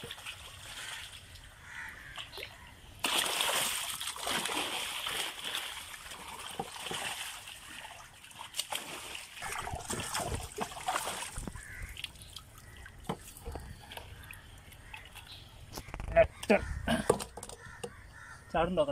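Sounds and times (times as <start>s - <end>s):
fish splashing in a net: 2.2s - 15.3s
water trickling and dripping: 3.9s - 15.8s
knocks and clicks: 15.8s - 18.0s.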